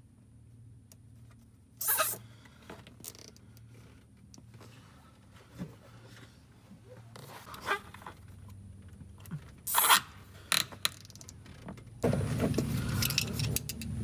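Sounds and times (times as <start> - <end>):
zip tie ratcheting: 1.8 - 2.2, 9.7 - 11.3.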